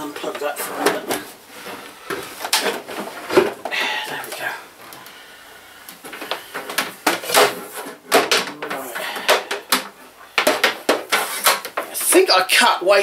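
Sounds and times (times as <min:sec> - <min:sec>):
electrical cable rustling: 0:00.0 - 0:12.6.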